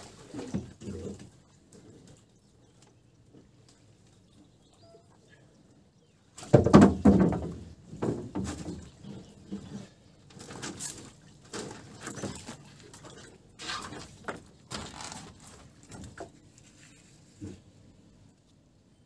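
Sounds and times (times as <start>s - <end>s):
water splashing: 0.0s - 1.7s
wooden pole knocking: 6.5s - 8.8s
fishing net rustling: 10.3s - 17.4s.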